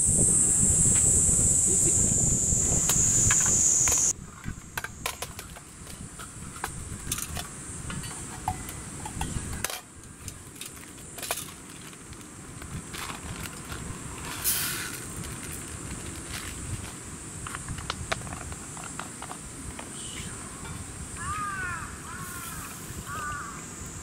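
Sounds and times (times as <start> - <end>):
cicadas buzzing: 0.0 - 24.0
plastic rustle: 10.4 - 19.4.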